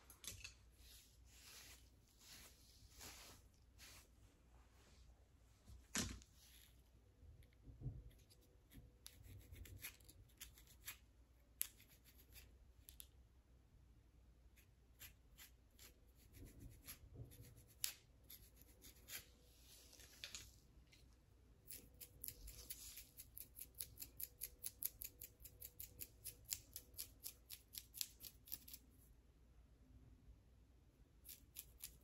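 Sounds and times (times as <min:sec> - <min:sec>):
comb scratching scalp: 0:00.8 - 0:04.1, 0:08.1 - 0:12.6, 0:14.6 - 0:20.2, 0:21.7 - 0:29.0, 0:31.2 - 0:32.0.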